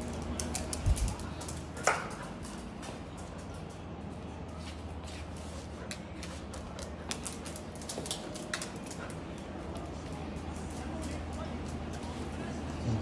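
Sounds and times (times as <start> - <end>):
dog claws clicking on tiles: 0.0 - 3.7, 5.8 - 11.9.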